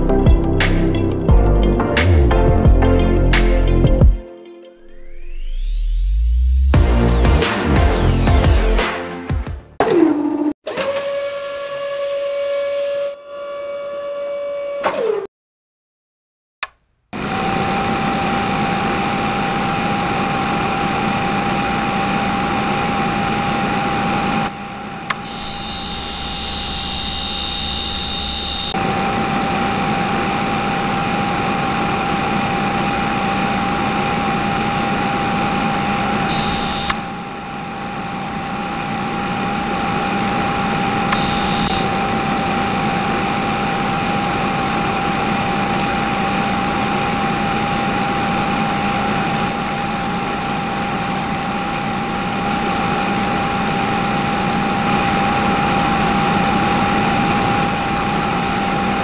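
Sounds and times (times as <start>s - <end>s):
higher whine: 4.8s - 8.9s, 19.2s - 59.0s
small electric motor whining: 24.7s - 28.8s, 31.0s - 59.0s.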